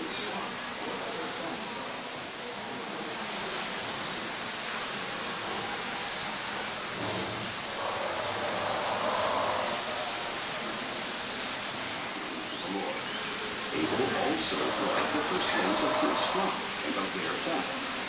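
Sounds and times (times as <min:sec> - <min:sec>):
exhibit hall background hiss: 0:00.0 - 0:18.0.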